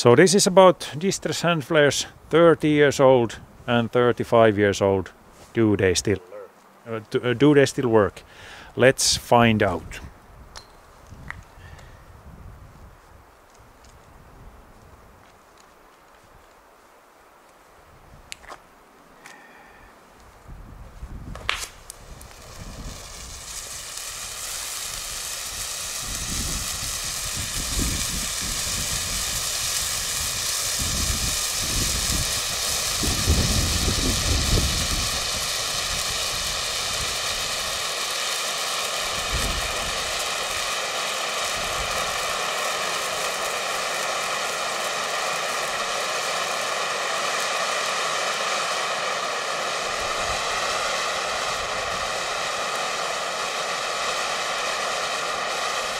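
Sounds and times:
flare burning with hiss: 5.1 - 55.9.

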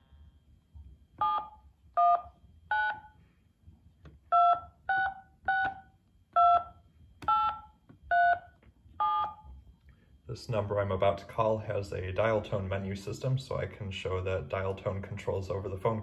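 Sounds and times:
touch-tone keypad beeps: 1.2 - 3.1, 4.3 - 5.8, 6.4 - 9.4.

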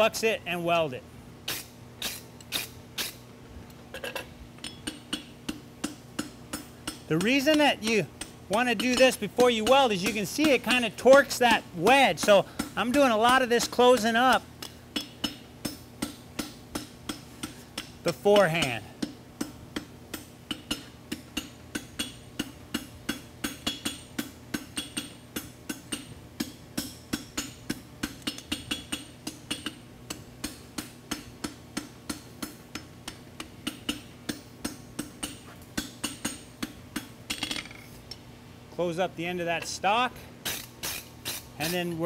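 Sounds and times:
faint steady hum: 0.0 - 42.0
hammer striking steel on anvil: 4.6 - 37.8.

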